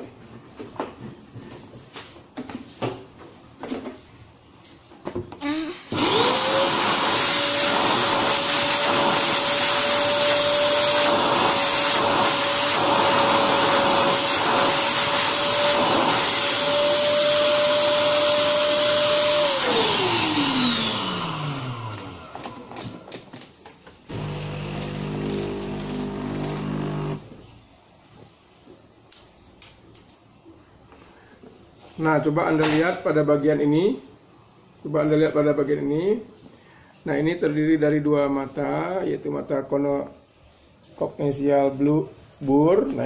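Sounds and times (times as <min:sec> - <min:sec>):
vacuum cleaner whining: 0:05.4 - 0:27.6.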